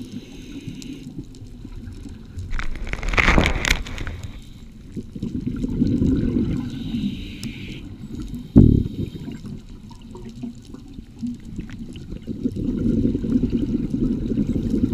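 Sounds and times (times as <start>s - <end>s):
regulator hiss on inhale: 0.0s - 1.2s, 6.6s - 9.5s
exhaled bubbles rumbling underwater: 0.0s - 14.9s.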